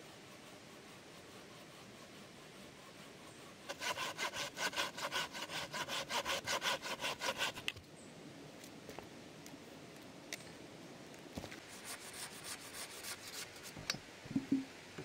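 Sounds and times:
faint background hiss: 0.0s - 15.0s
saw cutting wood: 0.8s - 7.7s.

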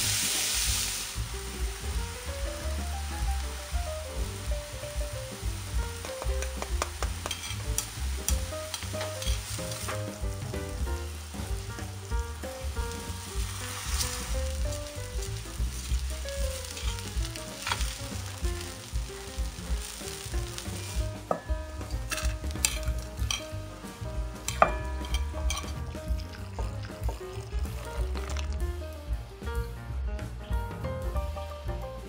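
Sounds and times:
rice poured into pan: 0.0s - 1.3s, 6.1s - 10.2s, 13.0s - 21.4s, 24.4s - 28.6s
onion sizzling in pan: 0.0s - 29.3s
soft background music: 0.0s - 32.0s
stirring and scraping clicks: 6.0s - 9.4s.

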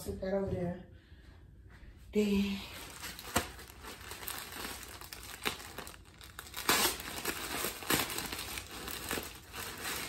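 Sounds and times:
plastic bag crinkling: 2.6s - 10.0s.

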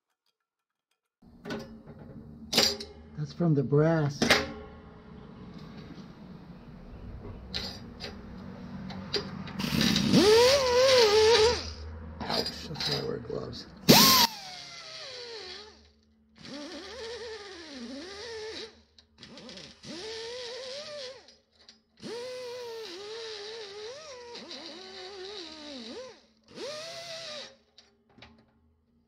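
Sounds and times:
air grinder whining: 9.5s - 11.8s, 13.9s - 21.3s, 22.0s - 27.6s.

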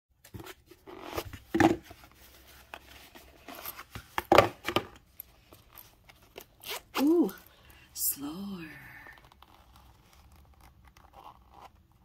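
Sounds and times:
pouch rustling: 0.8s - 4.4s.

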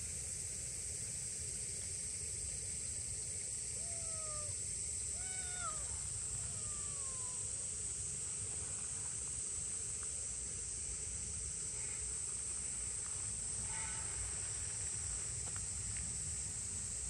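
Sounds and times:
faint kitten meow: 3.7s - 7.7s.

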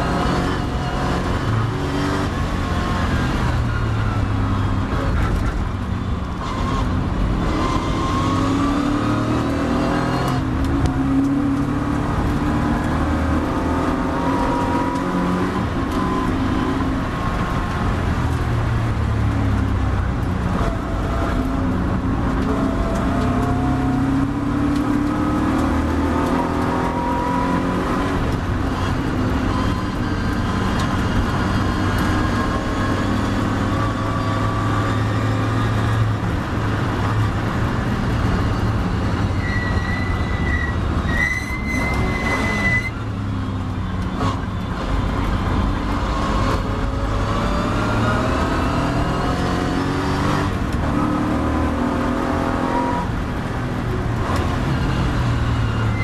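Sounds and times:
race car engine revving: 0.0s - 43.0s, 43.6s - 56.0s
wind and road rush: 0.0s - 56.0s.

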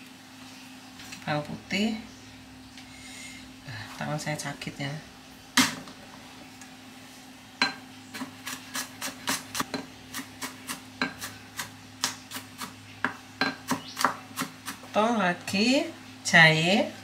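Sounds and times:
low steady hum: 0.0s - 17.0s
knife chopping on cutting board: 8.2s - 14.9s.

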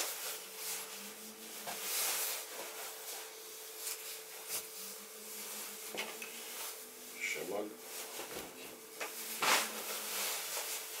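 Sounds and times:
faint steady hum: 0.0s - 11.0s
fabric rustling: 7.9s - 11.0s.

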